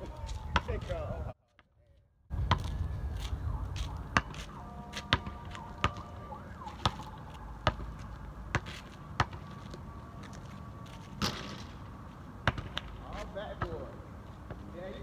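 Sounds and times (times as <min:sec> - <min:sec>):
basketball bouncing on pavement: 0:00.2 - 0:01.0, 0:02.3 - 0:02.9, 0:03.8 - 0:10.4, 0:11.2 - 0:11.8, 0:12.4 - 0:15.0.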